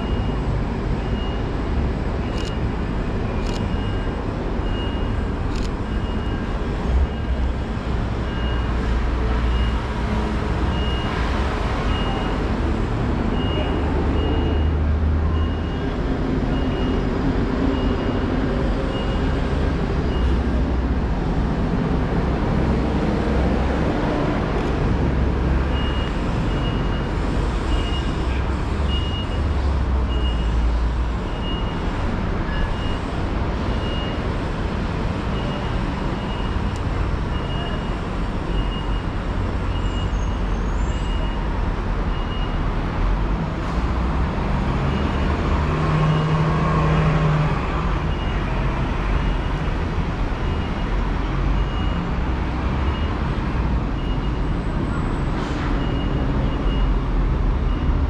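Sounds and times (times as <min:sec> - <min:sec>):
city street traffic rumble: 0:00.0 - 0:58.0
faint high beeps: 0:02.2 - 0:02.6.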